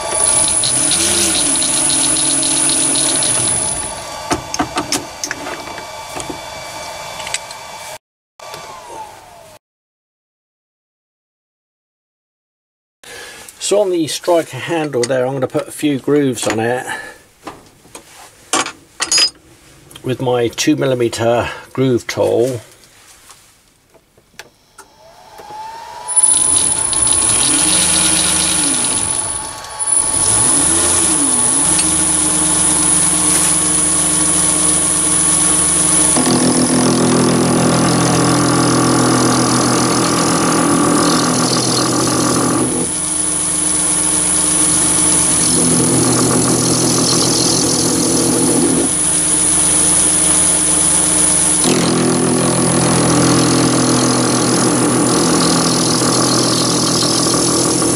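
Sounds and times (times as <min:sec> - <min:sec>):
tool cutting grooves into brass: 0:00.0 - 0:06.4, 0:26.1 - 0:57.9
lathe motor whining: 0:00.0 - 0:09.6, 0:24.5 - 0:57.9.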